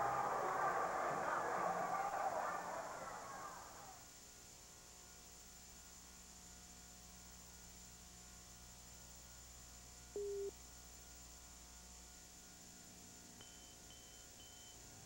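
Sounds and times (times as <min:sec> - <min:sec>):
electrical mains hum: 0:00.0 - 0:15.0
short electronic beep: 0:10.2 - 0:10.5.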